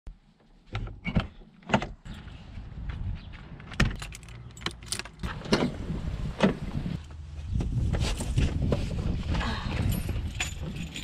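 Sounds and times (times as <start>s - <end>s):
keys jangling: 3.9s - 5.2s, 9.9s - 11.0s.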